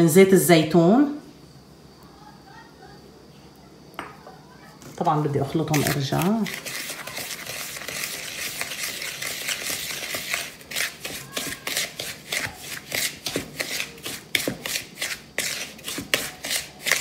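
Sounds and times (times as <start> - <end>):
spoon scraping gritty mixture: 4.8 - 17.0.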